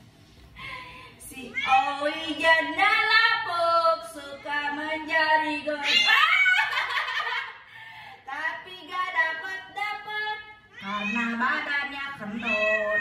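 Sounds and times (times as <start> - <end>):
cat yowling: 10.8 - 13.0.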